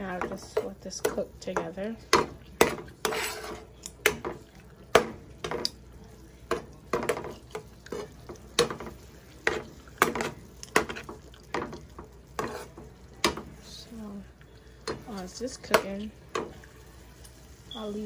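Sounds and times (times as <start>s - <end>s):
metal spoon scraping frying pan: 2.7s - 3.8s, 12.3s - 12.9s.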